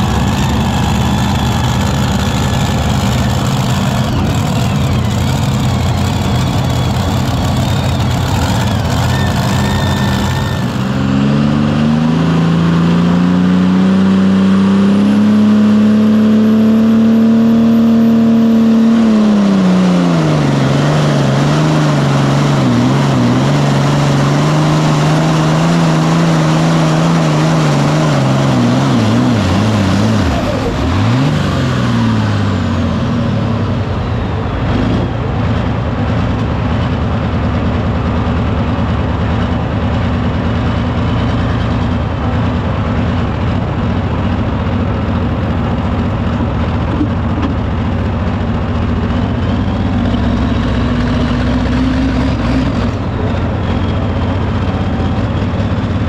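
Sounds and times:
tractor diesel engine at full power: 0.0 - 56.0.

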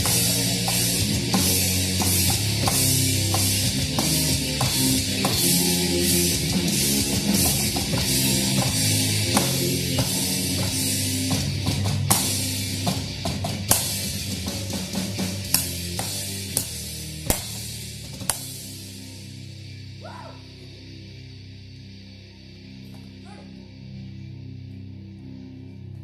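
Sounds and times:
electronic drum kit hits: 0.0 - 18.6
metal song with guitar and drums: 0.0 - 24.0.

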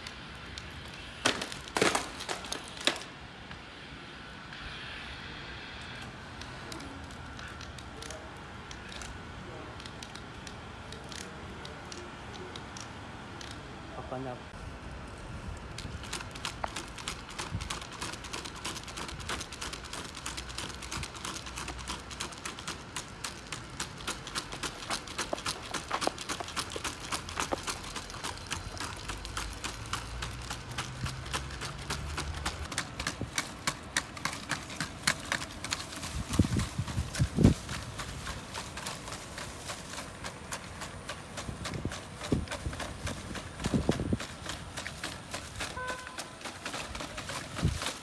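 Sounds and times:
robot feet tapping on asphalt: 0.0 - 3.7, 15.0 - 48.0.

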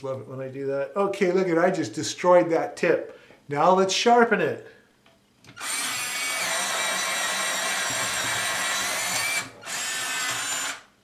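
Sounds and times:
electric pencil sharpener whining: 5.5 - 10.9.

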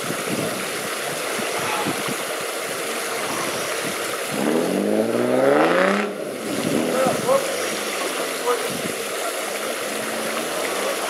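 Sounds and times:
engine rumbling and revving: 4.3 - 8.3.

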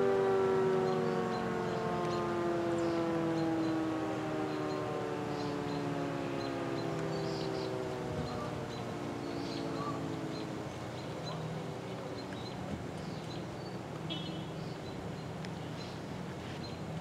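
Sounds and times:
siren winding down: 0.0 - 11.3
birds chirping: 0.0 - 17.0.

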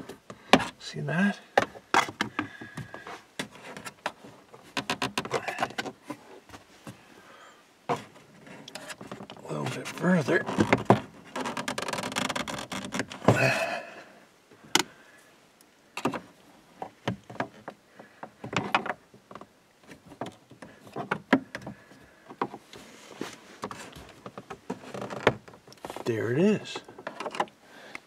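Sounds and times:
plastic trim scraping: 9.8 - 13.3.

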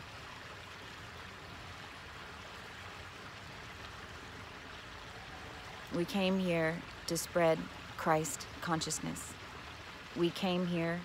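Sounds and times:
constant hiss: 0.0 - 11.0.

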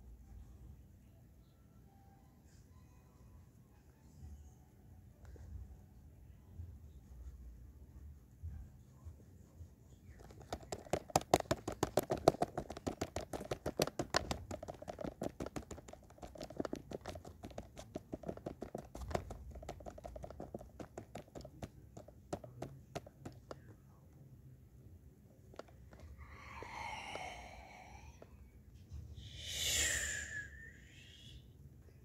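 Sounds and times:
sharp clicks or taps: 10.2 - 23.6.

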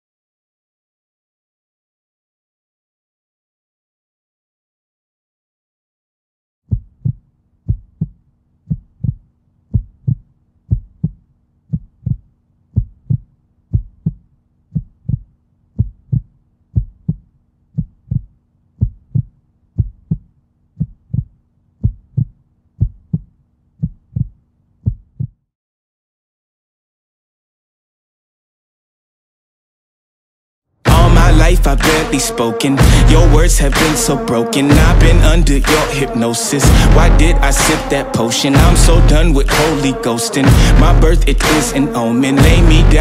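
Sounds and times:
heartbeat thumps: 6.7 - 25.4, 30.9 - 37.9, 38.6 - 39.8, 40.4 - 41.7, 42.4 - 43.0.

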